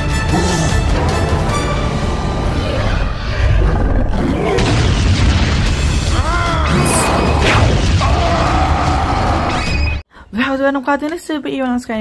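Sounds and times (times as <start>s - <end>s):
dramatic music: 0.0s - 10.0s
monster wavering cry: 6.1s - 9.6s.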